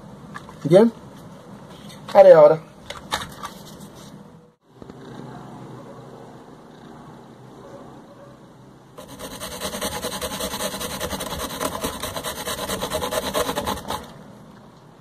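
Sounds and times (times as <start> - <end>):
hand tool rasping: 9.0 - 14.1.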